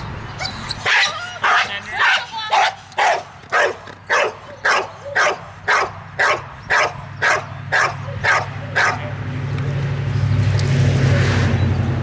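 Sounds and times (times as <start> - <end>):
dog barking sharply: 0.9 - 9.0.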